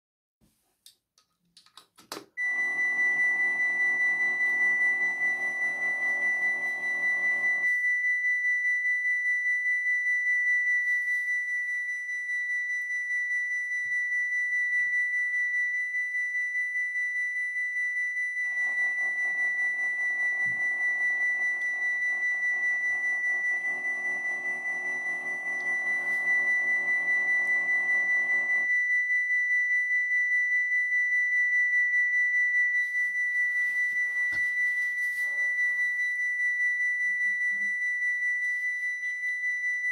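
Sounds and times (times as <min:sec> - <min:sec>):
barrier motor buzz: 0:18.6 - 0:28.6.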